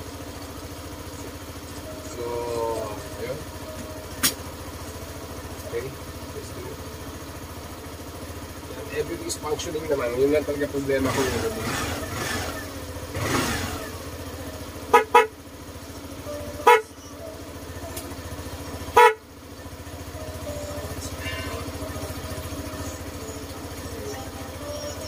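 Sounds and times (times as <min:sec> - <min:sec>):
steady low hum: 0:00.0 - 0:25.0
scooter horn short beeps: 0:14.8 - 0:15.5, 0:16.4 - 0:17.1, 0:18.8 - 0:19.4.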